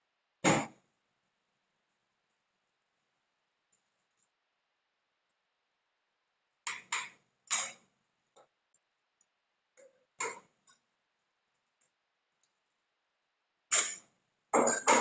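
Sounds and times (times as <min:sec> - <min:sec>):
kitchen items knocking and clattering: 0:14.6 - 0:15.0.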